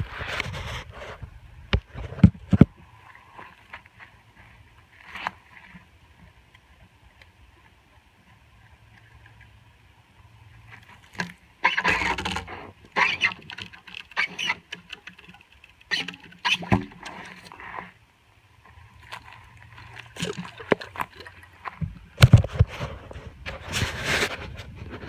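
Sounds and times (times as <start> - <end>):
water patter: 10.6 - 23.2
pump rod scraping in pipe: 11.6 - 17.9.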